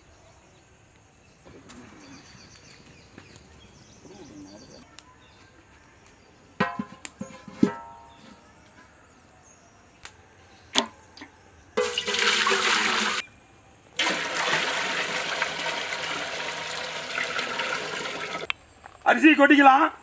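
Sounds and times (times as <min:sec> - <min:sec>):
metal pot clanking on stones: 0:06.6 - 0:08.2, 0:11.8 - 0:13.2
water pouring into metal pot: 0:11.8 - 0:13.2, 0:14.0 - 0:18.5.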